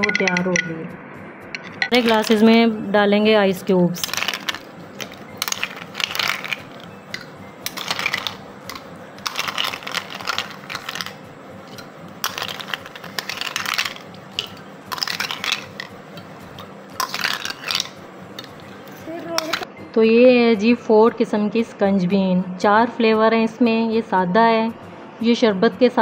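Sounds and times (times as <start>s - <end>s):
ice cubes clinking in glass: 1.8s - 2.4s, 4.0s - 16.0s, 17.0s - 18.6s.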